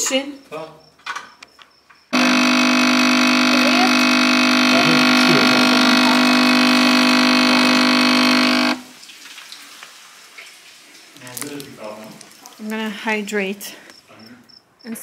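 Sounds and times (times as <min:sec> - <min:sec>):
espresso machine pump buzzing: 0:02.1 - 0:08.9.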